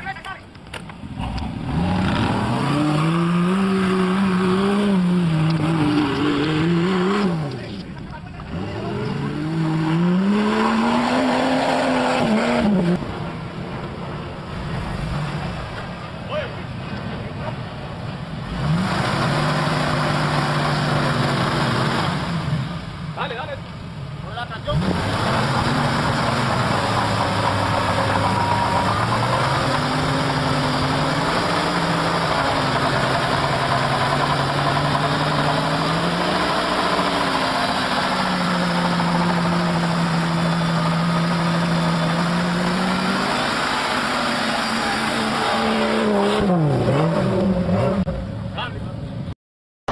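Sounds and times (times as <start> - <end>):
tires churning through mud: 0.9 - 49.3
engine revving hard: 1.2 - 7.7, 8.5 - 13.0, 24.7 - 48.2.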